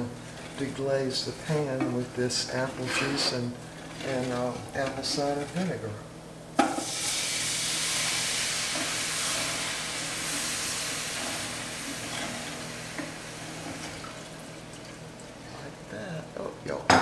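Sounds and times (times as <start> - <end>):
liquid sizzling in hot pan: 6.6 - 15.3.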